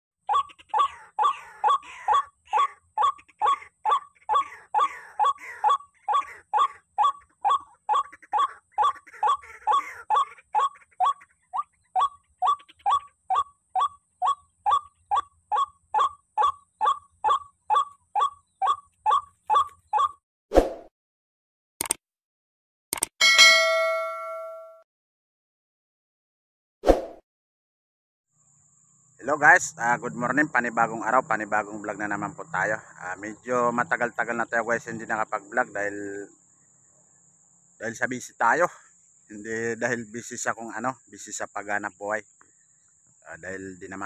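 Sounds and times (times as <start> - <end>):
waterhen calling: 0.3 - 20.2
sharp click: 21.8 - 22.0, 22.9 - 23.2.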